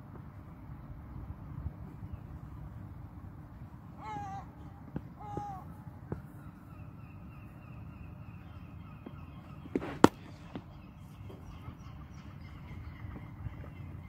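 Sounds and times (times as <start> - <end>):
low outdoor background noise: 0.0 - 14.0
cricket bat striking ball: 9.7 - 10.7.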